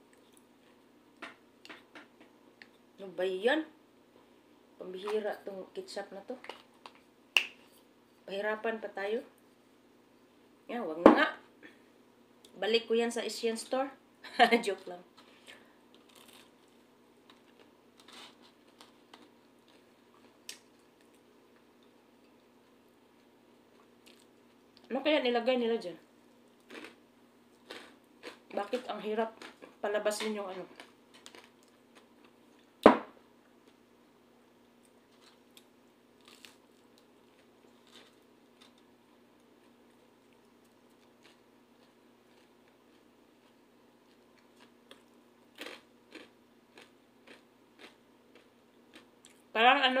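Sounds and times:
faint clicks and rustles of eating: 0.0 - 2.9, 6.3 - 8.2, 15.1 - 24.9, 26.0 - 32.8, 33.4 - 49.5
person biting and chewing: 16.0 - 21.2, 36.2 - 38.9, 40.4 - 49.4.

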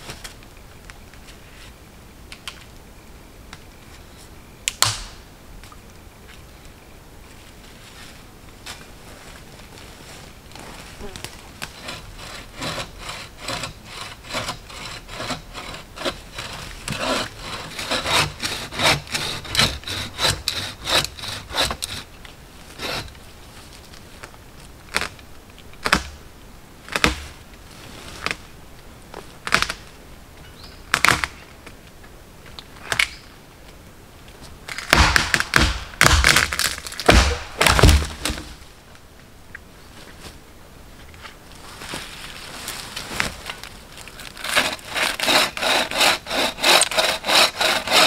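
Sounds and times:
hand saw cutting wood: 11.7 - 22.1, 22.8 - 23.1, 44.4 - 48.0
loud cracks and heavy thuds: 34.7 - 38.6
hatchet chopping wood: 34.8 - 38.5.

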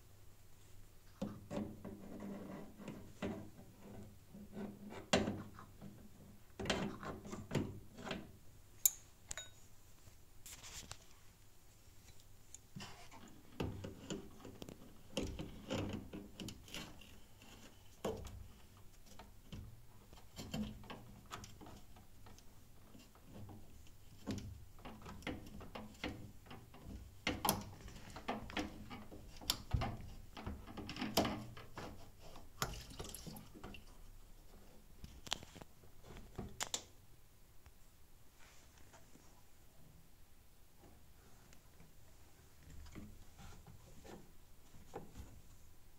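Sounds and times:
pliers clicking and scraping on metal: 8.8 - 9.5.

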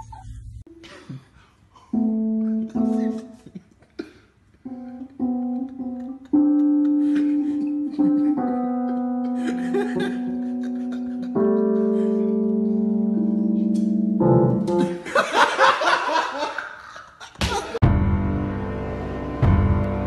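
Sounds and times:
keyboard instrument chords: 1.9 - 3.6, 4.6 - 15.2, 17.8 - 20.0.

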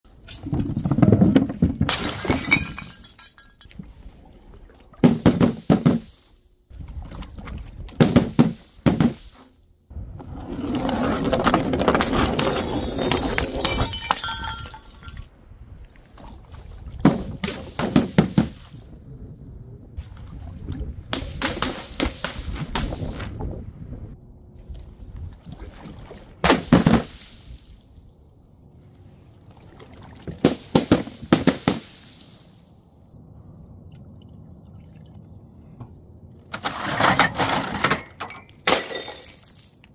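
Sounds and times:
glass breaking crashes: 1.9 - 3.7, 12.0 - 15.3, 36.7 - 39.9
glass jars rolling: 11.3 - 15.3, 36.6 - 39.9.

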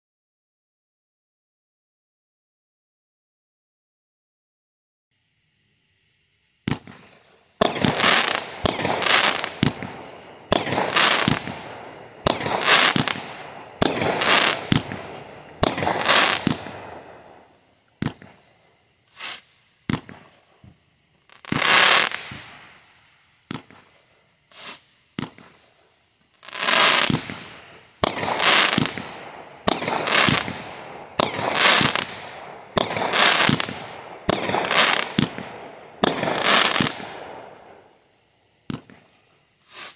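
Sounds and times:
firework bangs: 6.6 - 22.8, 23.4 - 25.7, 26.3 - 37.9, 38.6 - 39.9
small firework pops: 6.6 - 22.8, 23.4 - 37.9, 38.6 - 39.9.

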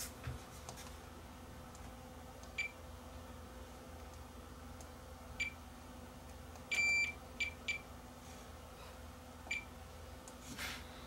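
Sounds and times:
multimeter continuity beeps: 2.5 - 2.8, 5.4 - 5.6, 6.7 - 7.9, 9.5 - 9.7.

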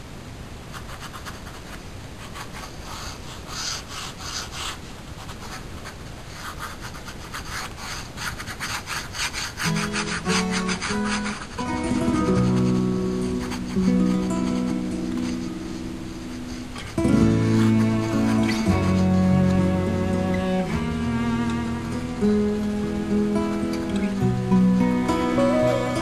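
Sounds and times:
pen scratching on paper: 0.7 - 19.4
acoustic guitar notes: 9.6 - 26.0.

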